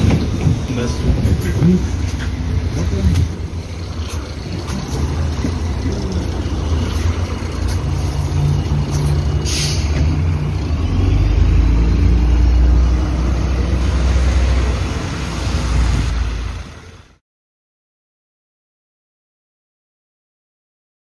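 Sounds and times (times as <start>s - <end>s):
bus diesel engine running: 0.0s - 17.2s
compressed air hiss: 9.4s - 10.0s.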